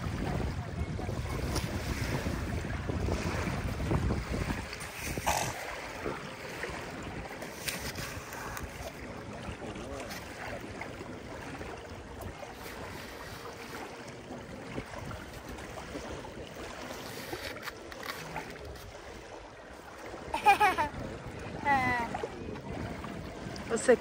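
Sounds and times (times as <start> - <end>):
wind across microphone: 0.0 - 10.0
small waves lapping: 0.0 - 24.0.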